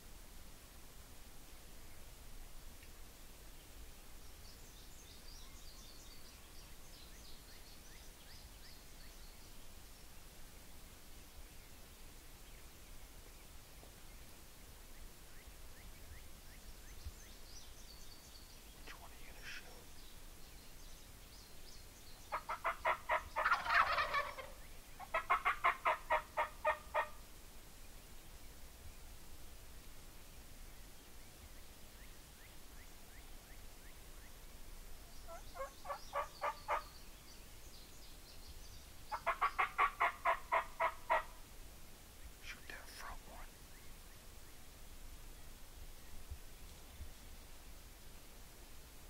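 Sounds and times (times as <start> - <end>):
songbird singing: 1.5 - 49.0
turkey gobbling: 22.3 - 27.1, 35.3 - 36.9, 39.1 - 41.3
turkey yelps: 22.3 - 27.1, 35.3 - 36.9, 39.1 - 41.3.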